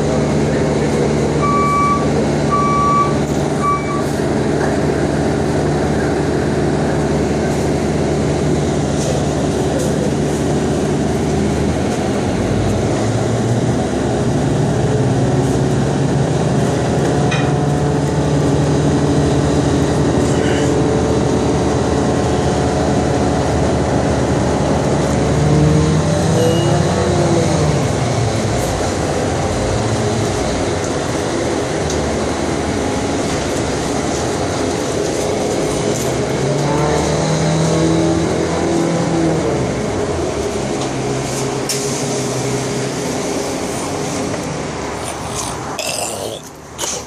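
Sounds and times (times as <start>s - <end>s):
bus engine and road noise: 0.0s - 47.0s.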